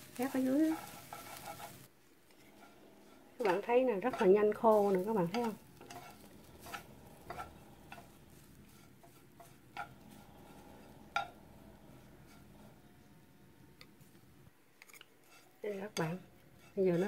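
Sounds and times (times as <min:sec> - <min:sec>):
wooden utensils stirring in pan: 0:00.0 - 0:17.0.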